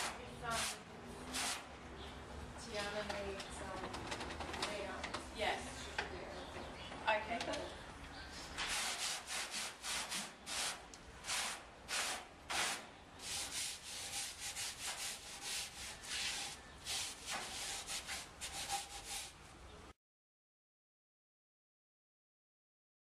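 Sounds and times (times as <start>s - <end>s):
scratchy rubbing strokes: 0.0s - 1.7s, 8.6s - 19.4s.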